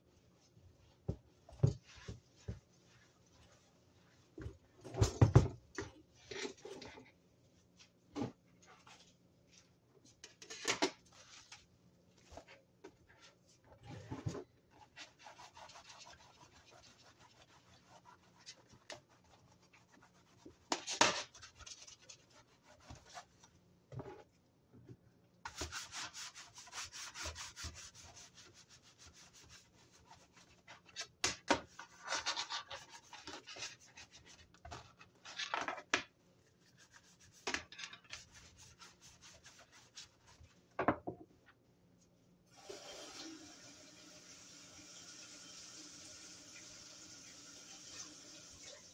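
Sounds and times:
brush scrubbing wet countertop: 0:00.2 - 0:04.4, 0:11.1 - 0:23.5, 0:25.5 - 0:35.0, 0:36.4 - 0:40.7.

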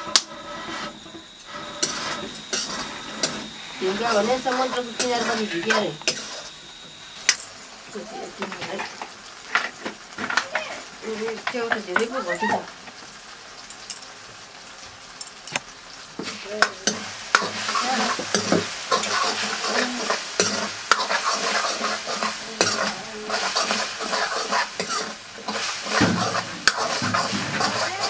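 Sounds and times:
metal ladle scraping a pan: 0:00.0 - 0:07.4, 0:16.2 - 0:28.0
mushrooms sizzling in a wok: 0:00.0 - 0:28.0.

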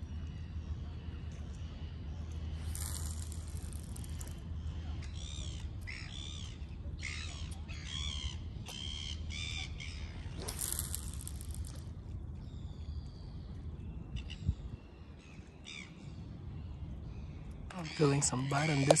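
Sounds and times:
low steady rumble: 0:00.0 - 0:19.0
fishing line whirring off reel: 0:02.6 - 0:04.4, 0:10.3 - 0:12.0.

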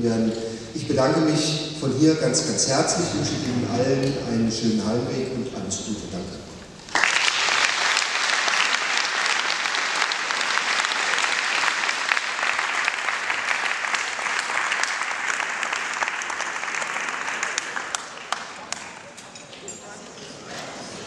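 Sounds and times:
audience applauding: 0:06.9 - 0:19.2.

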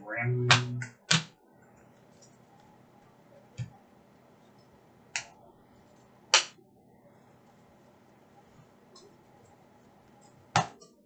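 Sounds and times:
cards tapped onto a table: 0:00.5 - 0:01.3.

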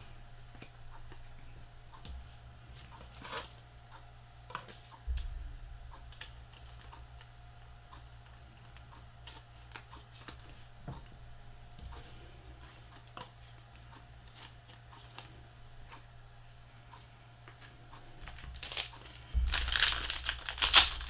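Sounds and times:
steady low hum: 0:00.0 - 0:21.0
low thump: 0:05.1 - 0:06.0
cards rustling: 0:12.6 - 0:15.3, 0:17.4 - 0:21.0
cards clicking and tapping: 0:17.4 - 0:21.0.

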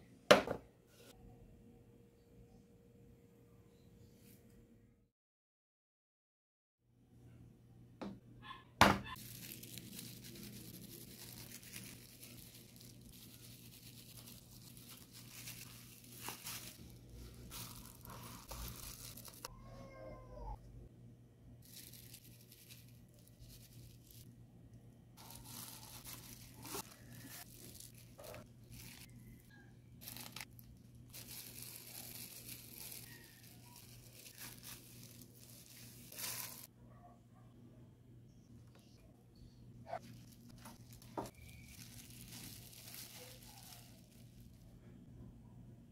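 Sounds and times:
baking paper peeling off: 0:09.1 - 0:19.5, 0:21.6 - 0:24.3, 0:25.2 - 0:29.1, 0:30.0 - 0:36.7, 0:40.0 - 0:44.5
plastic glove crinkling: 0:09.1 - 0:19.5, 0:21.6 - 0:24.3, 0:25.2 - 0:36.7, 0:39.9 - 0:44.7
sugar sifting rustle: 0:09.2 - 0:19.5, 0:25.2 - 0:29.1, 0:30.0 - 0:36.7, 0:40.0 - 0:44.5.

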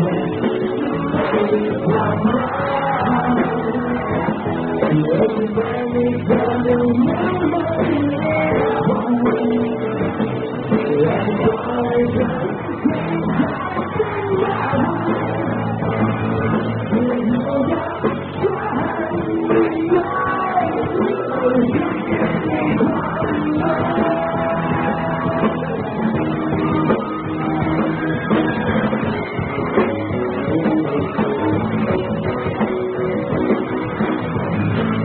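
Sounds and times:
person singing: 0:00.0 - 0:28.9
drums: 0:00.0 - 0:35.0
electric guitars: 0:00.0 - 0:35.0.

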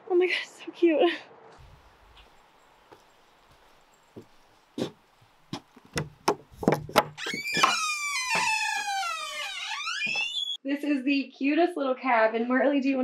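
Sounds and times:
door hinge creaking: 0:05.9 - 0:10.6.

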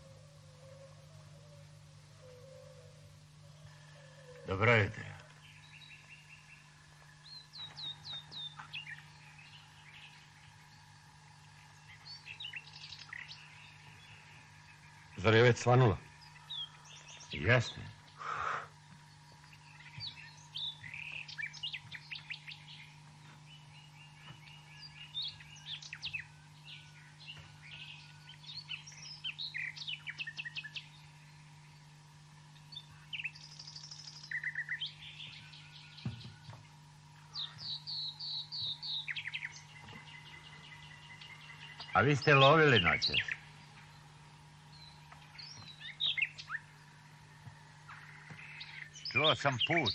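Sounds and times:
faint steady hum: 0:00.0 - 0:49.9
small birds chirping and trilling: 0:00.0 - 0:49.9.

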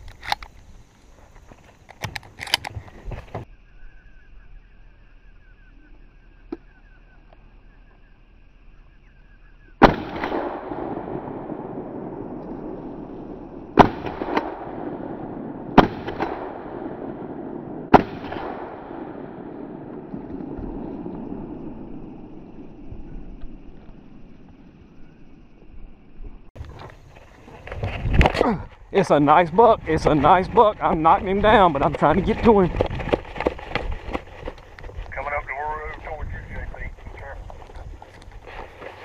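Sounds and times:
loud shotgun shots echoing: 0:09.8 - 0:22.2.

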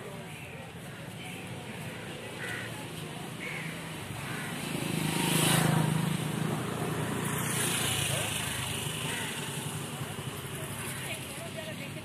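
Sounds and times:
vehicle passing by: 0:03.9 - 0:11.1.

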